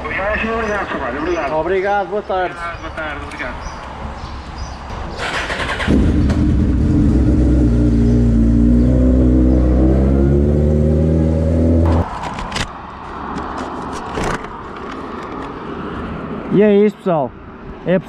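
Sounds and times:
motorcycle engine accelerating: 5.2 - 12.1.

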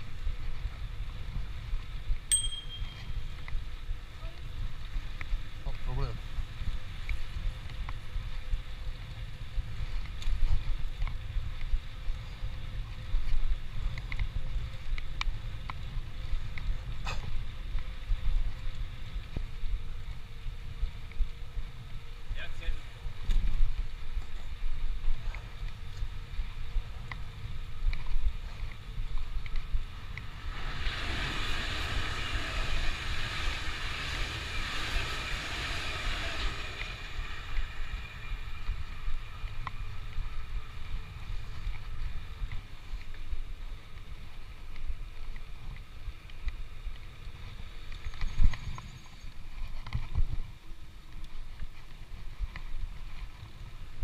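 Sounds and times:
rushing hiss: 30.3 - 37.9.

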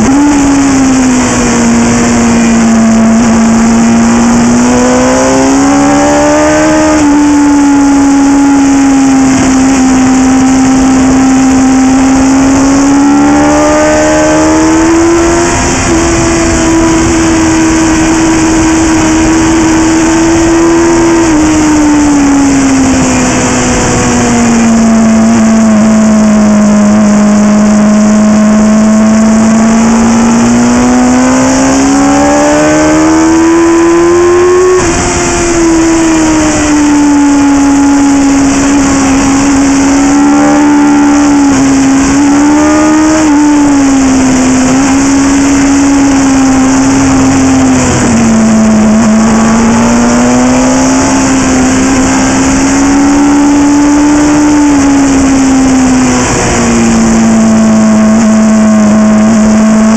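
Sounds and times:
motorcycle engine racing: 0.0 - 59.9
wind rushing: 29.9 - 57.3.

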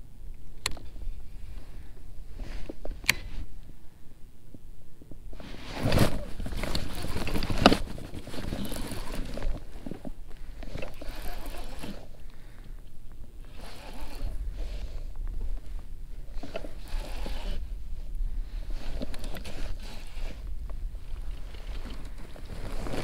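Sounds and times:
rustling handling noise: 5.2 - 23.0.

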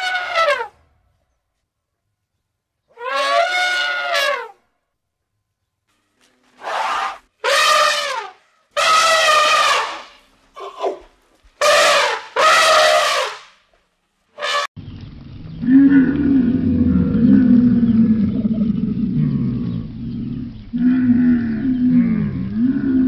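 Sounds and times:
elephant trumpeting: 2.9 - 4.6, 6.6 - 11.0, 11.6 - 13.4
camel groaning: 15.6 - 23.0.

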